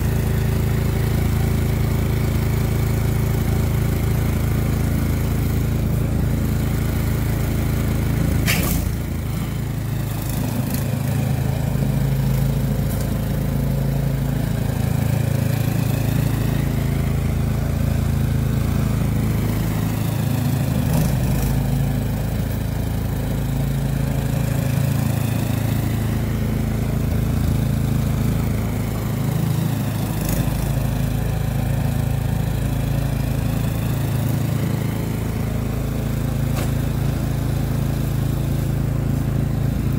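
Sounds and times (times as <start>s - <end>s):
snowblower engine running: 0.0s - 39.9s
sharp click: 8.5s - 8.9s.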